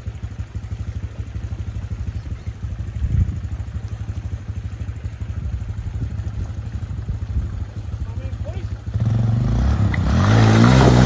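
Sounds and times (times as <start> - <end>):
atv engine running at low revs: 0.0 - 11.0.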